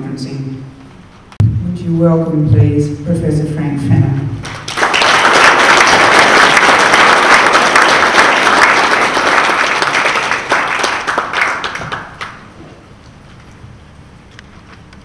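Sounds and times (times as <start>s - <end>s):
audience applauding: 4.4s - 12.5s.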